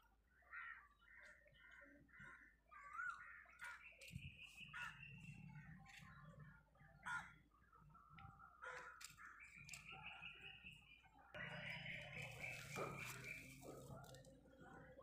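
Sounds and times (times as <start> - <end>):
faint crows cawing: 0.3 - 9.9.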